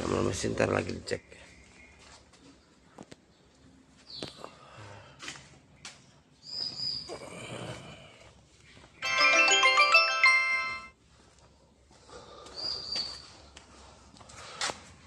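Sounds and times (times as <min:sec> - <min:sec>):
electronic melody of stepping tones: 0:09.0 - 0:10.9.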